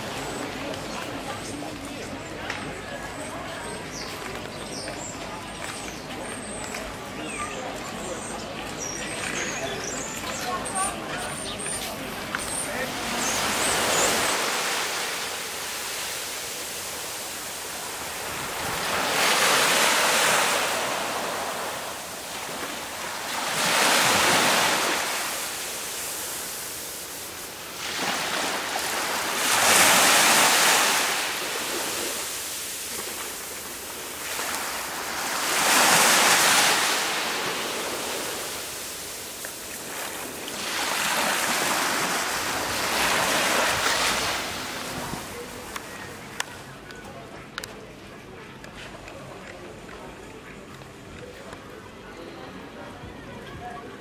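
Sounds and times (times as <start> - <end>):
sea waves breaking on shore: 9.9 - 46.4.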